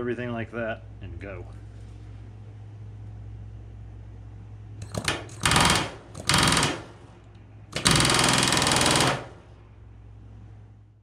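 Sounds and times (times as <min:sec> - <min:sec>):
steady low hum: 0:00.0 - 0:11.0
pneumatic rivet gun hammering: 0:04.8 - 0:07.0, 0:07.7 - 0:09.4.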